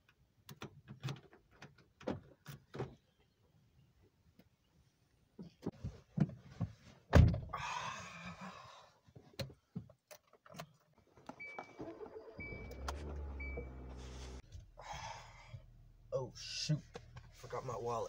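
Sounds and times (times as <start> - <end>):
dashboard warning chime: 11.4 - 14.0
car engine idling: 12.0 - 17.8.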